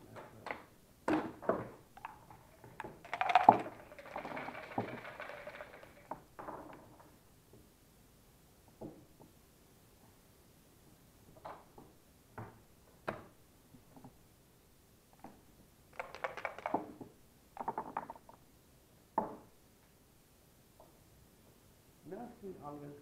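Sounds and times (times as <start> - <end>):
dice and checkers knocking on wooden board: 1.1 - 7.1, 16.0 - 18.4
dice rattling in cup: 2.0 - 6.8, 15.9 - 17.0.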